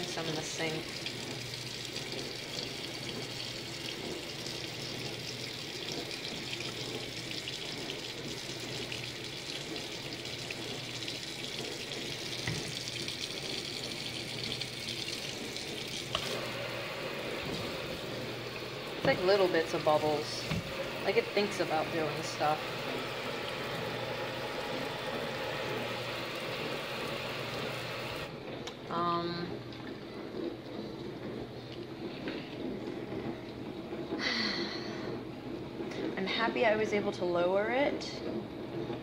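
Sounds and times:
faucet running into metal sink: 0:00.0 - 0:28.3.

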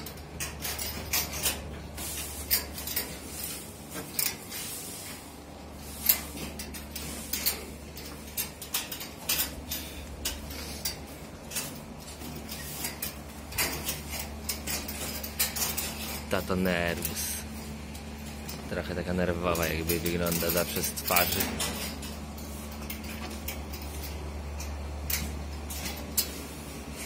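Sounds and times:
metal chains clinking and rattling: 0:00.0 - 0:04.6, 0:05.6 - 0:27.0
steady low hum: 0:00.0 - 0:27.0.

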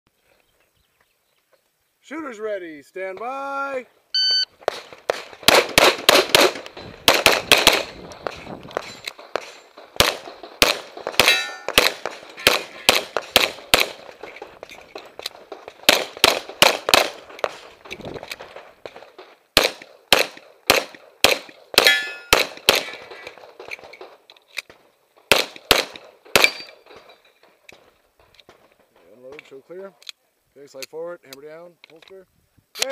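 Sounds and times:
pistol shots: 0:04.6 - 0:27.1
steel targets ringing: 0:11.2 - 0:11.8, 0:21.8 - 0:22.4.

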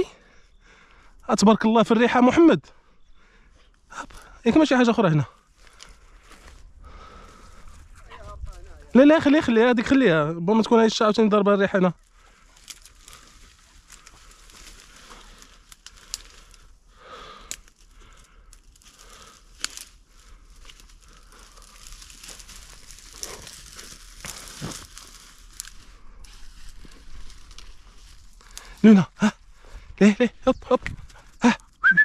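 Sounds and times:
twigs snapping: 0:05.5 - 0:07.7, 0:12.0 - 0:31.8
dry brush rustling: 0:12.0 - 0:31.6.

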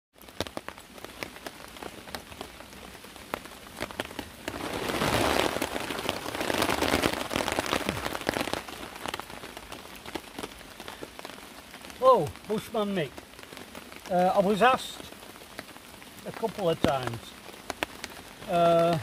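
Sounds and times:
raindrops tapping on a tarp: 0:00.1 - 0:19.0
hammock fabric rustling: 0:03.8 - 0:10.6.

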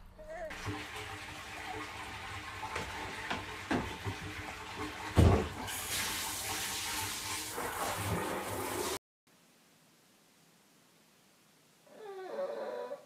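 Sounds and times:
water running from a tap: 0:00.5 - 0:09.0
thump: 0:05.2 - 0:05.5.

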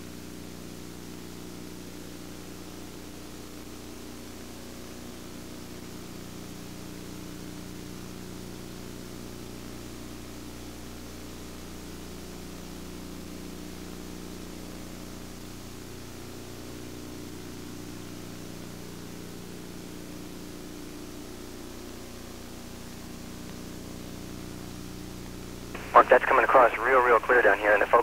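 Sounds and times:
steady hum and hiss: 0:00.0 - 0:28.0
constant low tones: 0:25.8 - 0:28.0.

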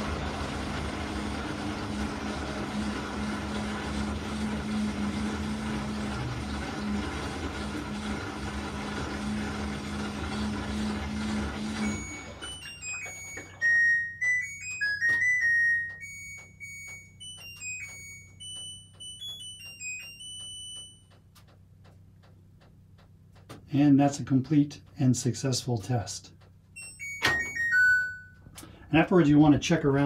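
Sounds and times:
washer drum spinning: 0:00.0 - 0:21.0
electronic beeping melody: 0:11.7 - 0:21.1, 0:26.8 - 0:28.4
faint regular clicks: 0:15.8 - 0:23.7.

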